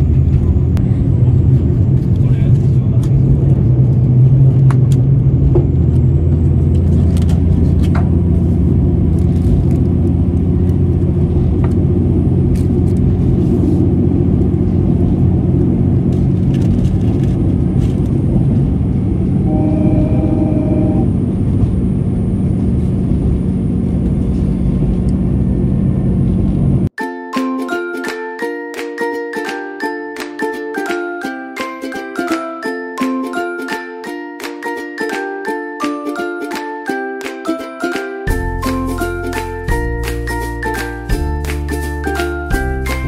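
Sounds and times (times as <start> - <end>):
railcar engine and wheels rumbling: 0.0 - 26.9, 37.3 - 43.0
brief pitched tone: 19.4 - 21.2.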